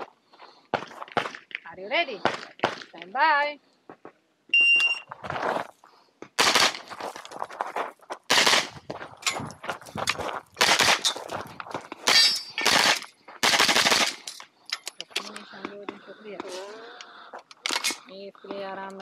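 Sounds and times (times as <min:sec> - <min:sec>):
shot timer beep: 0:04.5 - 0:05.1
carbine gunshots: 0:06.4 - 0:06.9, 0:08.3 - 0:08.8, 0:10.6 - 0:11.2, 0:12.0 - 0:14.4.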